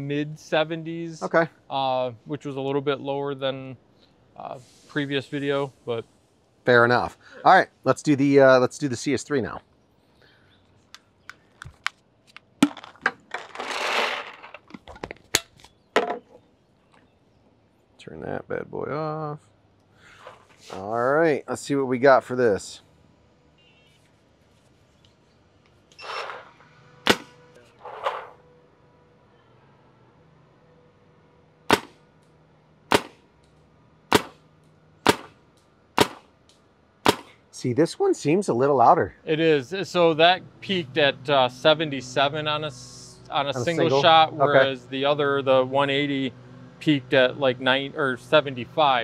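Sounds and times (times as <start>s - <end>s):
paintballs rattling into hopper: 12.6s - 14.9s
paintball marker shots: 27.1s - 27.4s, 31.7s - 32.1s, 32.9s - 33.3s, 34.1s - 35.4s, 36.0s - 36.3s, 37.0s - 37.4s.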